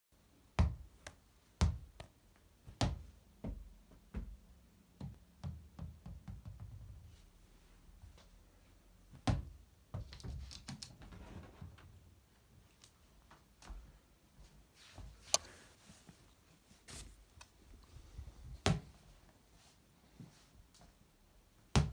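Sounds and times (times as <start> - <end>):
ball bouncing on laminate floor: 0.6 - 0.8, 5.0 - 7.0.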